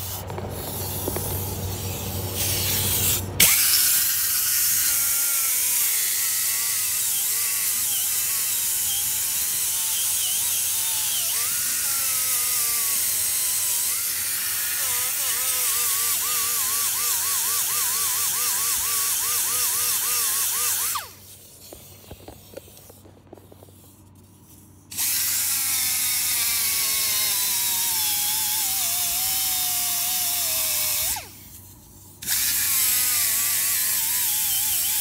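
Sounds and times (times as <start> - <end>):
die grinder sanding metal: 0.0 - 21.7.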